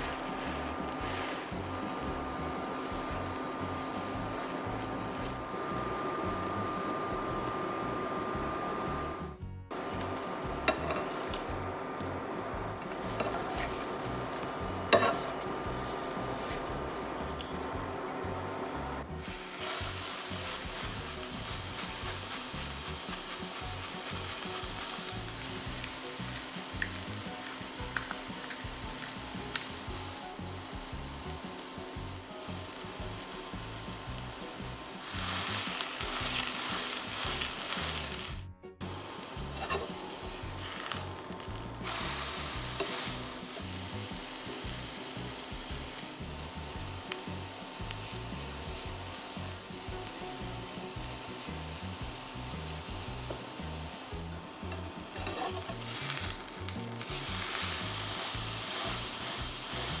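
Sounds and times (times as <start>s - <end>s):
food sizzling in a hot pan: 0.0s - 60.0s.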